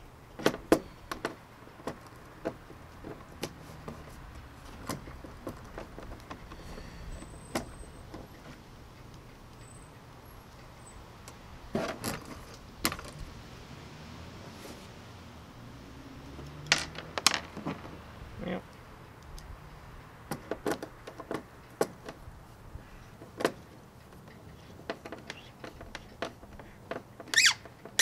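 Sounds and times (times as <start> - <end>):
small parts clattering: 16.6 - 18.0.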